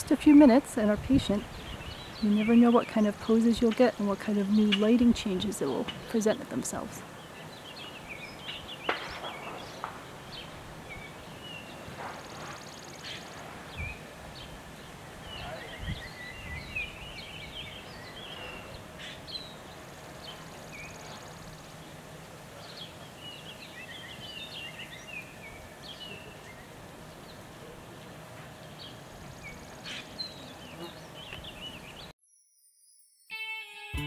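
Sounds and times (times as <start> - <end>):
small birds chirping: 0.0 - 32.1.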